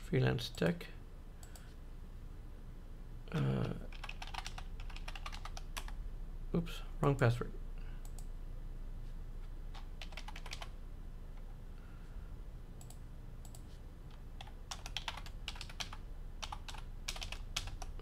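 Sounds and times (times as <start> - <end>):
low steady hum: 0.0 - 18.0
keyboard typing: 3.3 - 6.0, 9.7 - 10.7, 12.8 - 18.0.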